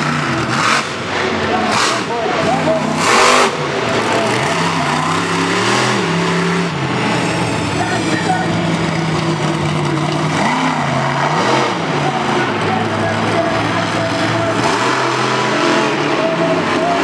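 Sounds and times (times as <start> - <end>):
truck engine revving: 0.0 - 17.0.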